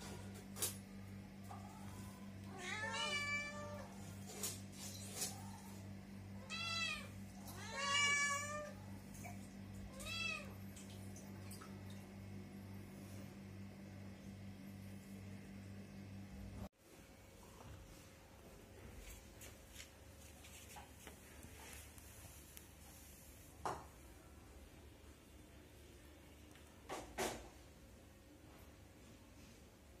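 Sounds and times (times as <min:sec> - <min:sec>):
cats meowing: 0:01.7 - 0:04.0, 0:06.4 - 0:08.8, 0:09.9 - 0:10.6
steady low hum: 0:08.5 - 0:20.4.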